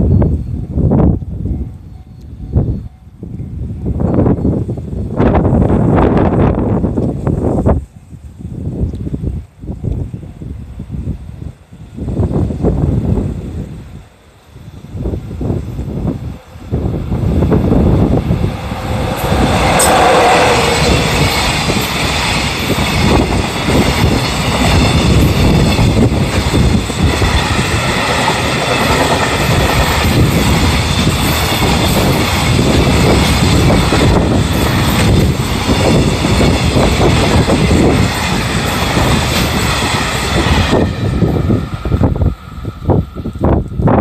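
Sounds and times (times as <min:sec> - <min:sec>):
freight train wagons rumbling: 0:12.4 - 0:44.0.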